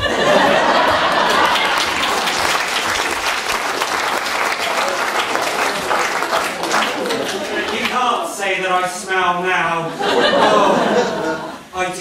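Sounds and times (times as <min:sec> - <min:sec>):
audience clapping: 0:00.0 - 0:08.3.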